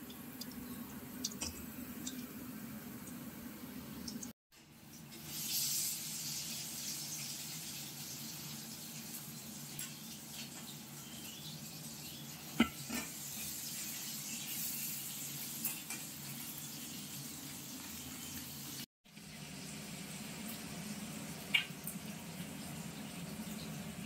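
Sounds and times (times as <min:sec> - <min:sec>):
fish sizzling in hot oil: 0:04.9 - 0:24.0.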